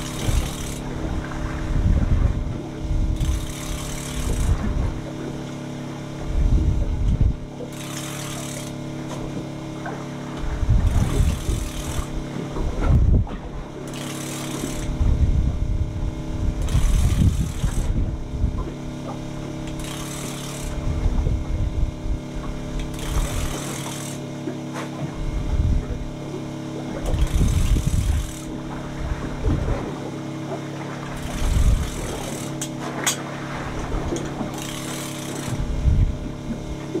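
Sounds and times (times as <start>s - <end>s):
wind buffeting microphone: 0.0s - 3.5s, 4.2s - 5.1s, 6.2s - 7.5s, 10.4s - 13.6s, 14.8s - 18.9s, 20.7s - 23.6s, 25.1s - 26.2s, 26.9s - 30.0s, 31.2s - 32.3s, 35.5s - 36.8s
boat engine humming: 0.0s - 37.0s.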